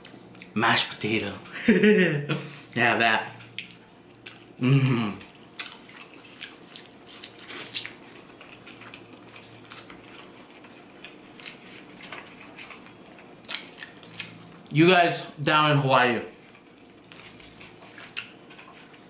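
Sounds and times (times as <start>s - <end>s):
chewing and mouth noises: 2.5s - 4.6s, 5.2s - 14.7s, 16.3s - 19.0s
person humming: 4.6s - 5.2s.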